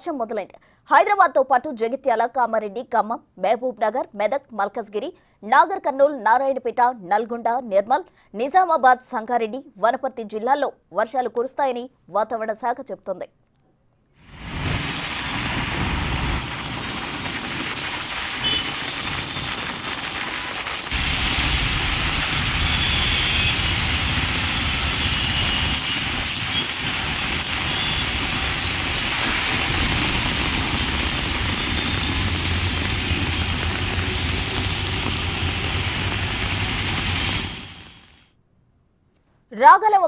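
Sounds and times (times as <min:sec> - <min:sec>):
heavy rain pouring on road: 0:14.2 - 0:38.2
vehicles driving through water: 0:14.3 - 0:19.9, 0:20.9 - 0:37.5.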